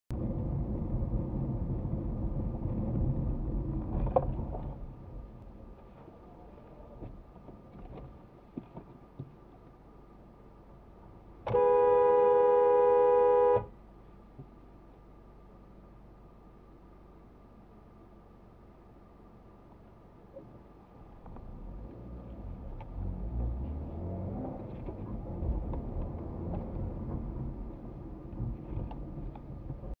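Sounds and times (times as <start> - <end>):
car engine and road noise: 0.1 - 30.0
car horn blast: 11.5 - 13.7.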